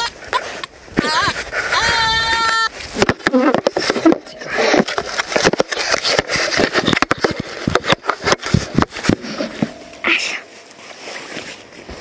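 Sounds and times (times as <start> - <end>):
grass and cloth rustling: 0.0 - 12.0
camera handling scrapes and knocks: 4.8 - 9.8.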